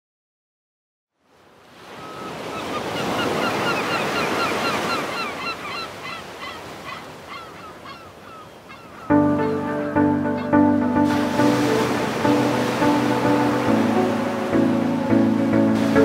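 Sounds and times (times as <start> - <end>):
short falling bird calls: 1.9 - 9.1
ocean surf washing on shore: 9.4 - 16.0.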